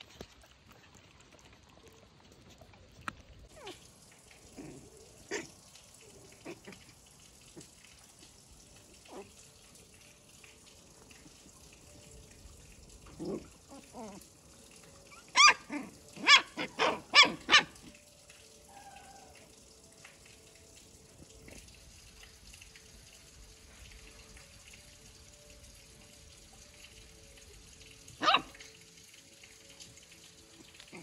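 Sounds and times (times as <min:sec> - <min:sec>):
dog barking: 0:04.5 - 0:05.5, 0:15.3 - 0:18.0, 0:28.2 - 0:28.7.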